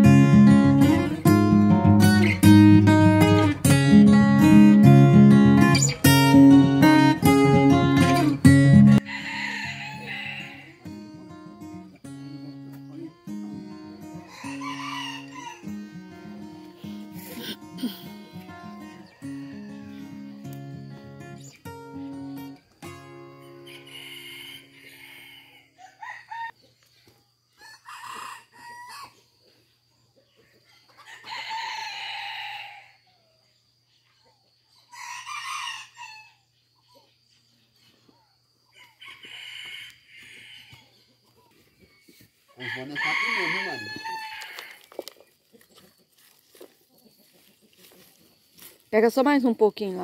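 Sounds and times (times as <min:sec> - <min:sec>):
rooster crowing: 0:08.2 - 0:11.0, 0:14.0 - 0:16.1, 0:17.4 - 0:20.4, 0:23.5 - 0:26.6, 0:27.6 - 0:29.2, 0:30.9 - 0:33.0, 0:34.9 - 0:36.4, 0:38.7 - 0:41.0, 0:42.6 - 0:45.0.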